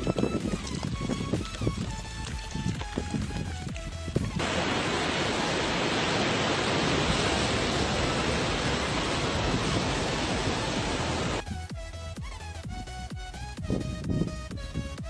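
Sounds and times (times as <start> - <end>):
music: 0.0 - 4.4, 8.7 - 15.0
ocean surf breaking: 4.4 - 11.4.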